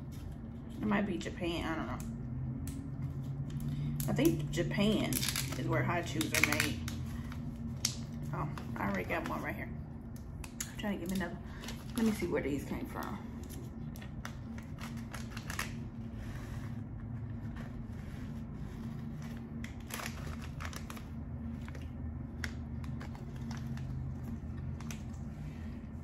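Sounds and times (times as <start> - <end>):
steady low hum: 0.0 - 26.0
snack packaging crinkling: 5.0 - 9.0, 13.4 - 16.1, 19.1 - 25.3.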